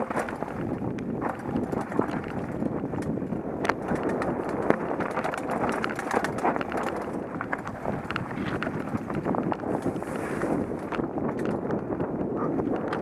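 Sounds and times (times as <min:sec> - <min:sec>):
bike clicks and knocks on rocks: 0:00.0 - 0:13.0
bike tyres rumbling over stones: 0:00.0 - 0:13.0.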